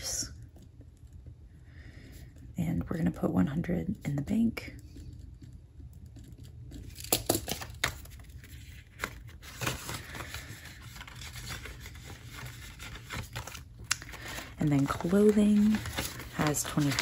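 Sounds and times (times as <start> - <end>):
paper money rustling: 6.9 - 17.0.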